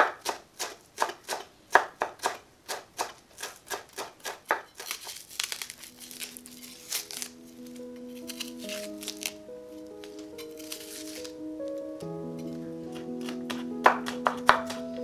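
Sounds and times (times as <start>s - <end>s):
onion skin crackling: 0.0s - 15.0s
knife chopping on wooden board: 12.9s - 15.0s.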